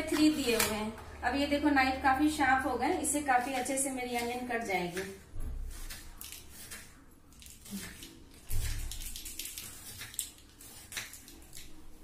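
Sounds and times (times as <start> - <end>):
knife slicing onion on board: 2.8 - 12.0.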